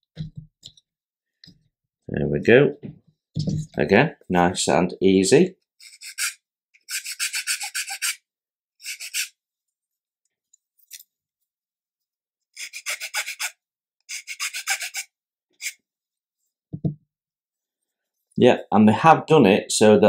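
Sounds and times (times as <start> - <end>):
metal file rasping on wood: 5.8 - 8.2, 8.8 - 9.3, 12.6 - 15.8.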